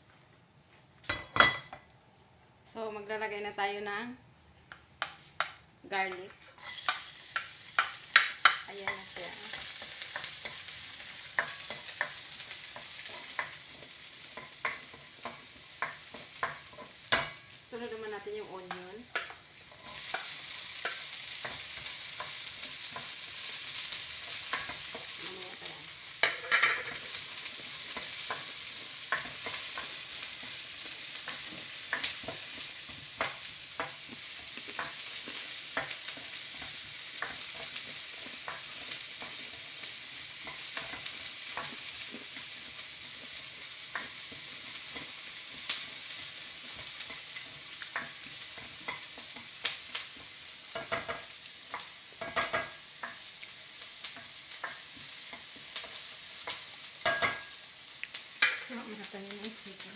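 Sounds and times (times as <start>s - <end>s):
onion sizzling in oil: 4.8s - 59.9s
spatula scraping wok: 6.2s - 17.8s, 18.7s - 59.9s.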